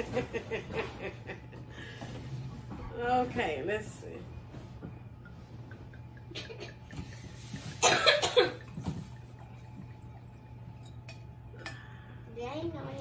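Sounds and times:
steady low hum: 0.0 - 13.0
person coughing: 7.8 - 8.7.

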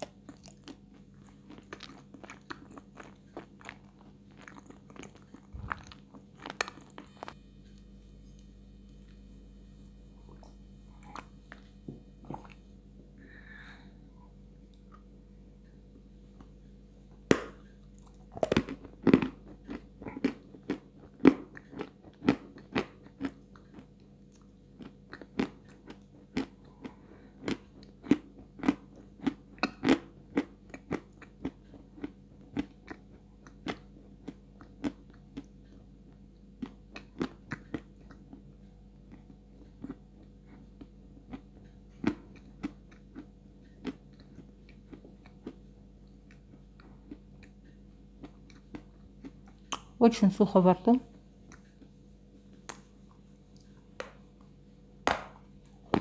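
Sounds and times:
crunchy chewing: 0.0 - 7.8, 17.6 - 49.9.

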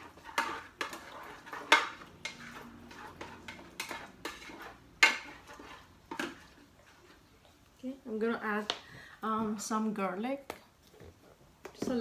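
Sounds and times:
spoon scraping a metal pot: 0.0 - 7.2.

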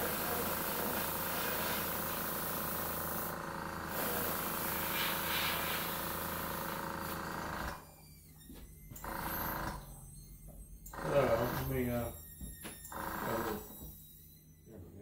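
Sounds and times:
airbrush hissing: 0.0 - 3.3, 3.9 - 7.2.

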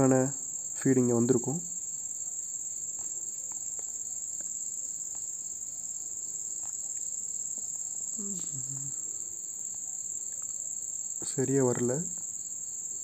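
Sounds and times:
crickets trilling: 0.0 - 13.0
low vocal murmur: 8.2 - 9.1.

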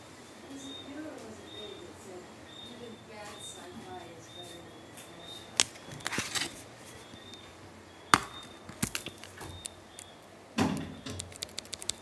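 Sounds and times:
faint high chirping tone: 0.4 - 6.1.

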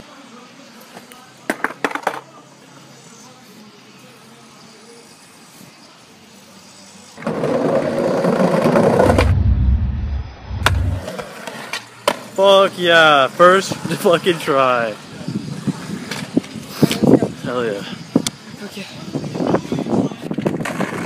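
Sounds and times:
deep skateboard rumble: 7.2 - 11.3.

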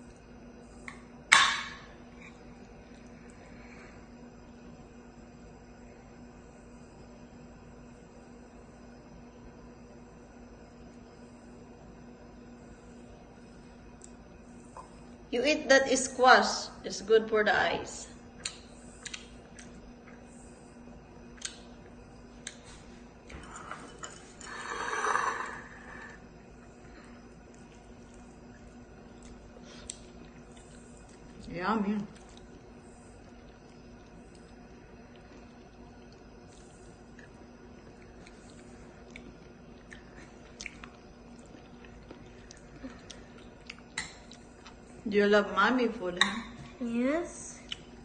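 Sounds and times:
low room hum: 0.0 - 48.0
faint chewing: 18.4 - 24.7, 25.4 - 45.0, 47.6 - 48.0
child eating with hands: 18.4 - 45.0.

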